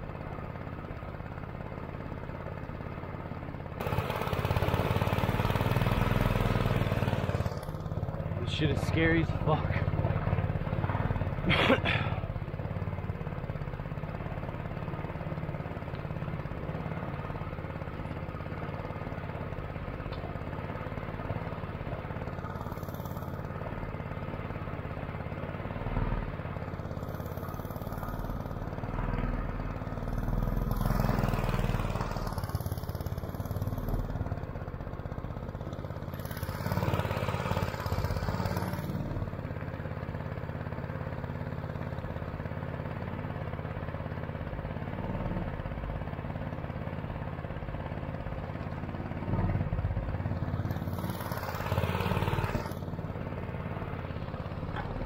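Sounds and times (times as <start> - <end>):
boat motor running: 3.8 - 12.9.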